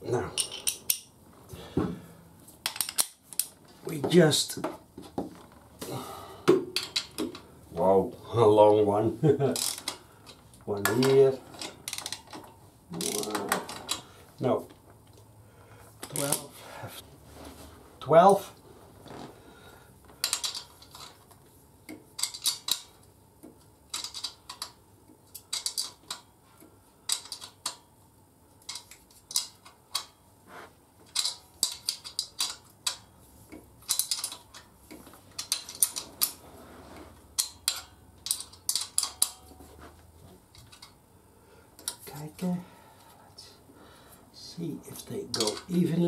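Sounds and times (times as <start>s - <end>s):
hand tools clicking on metal: 33.8s - 36.4s, 37.3s - 39.5s, 45.3s - 45.9s.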